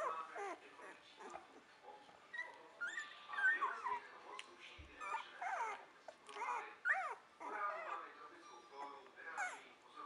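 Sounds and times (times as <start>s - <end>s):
puppies whimpering and squeaking: 0.0s - 9.8s.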